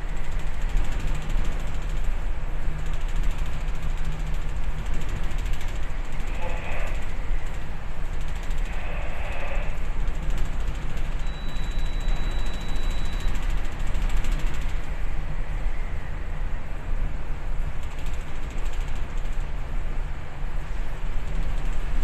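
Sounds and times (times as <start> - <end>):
ship rumble and rattling vibration: 0.0 - 22.0.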